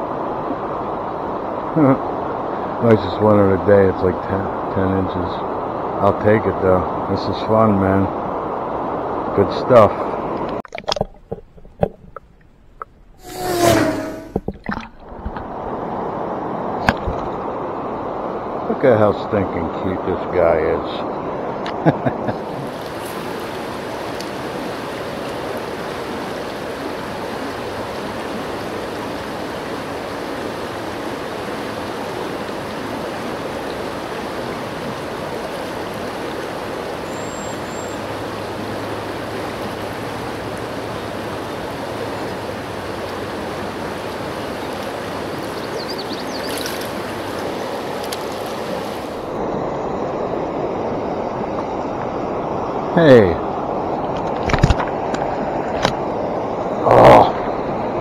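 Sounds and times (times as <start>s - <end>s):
river water flowing: 0.0s - 58.0s.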